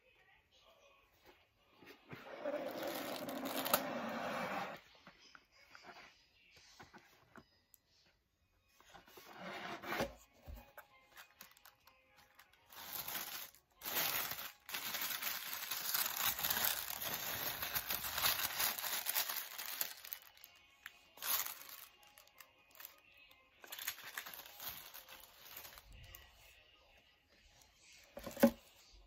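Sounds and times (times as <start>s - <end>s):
tissue paper rustling: 12.7s - 20.5s, 21.1s - 23.0s, 23.6s - 26.4s.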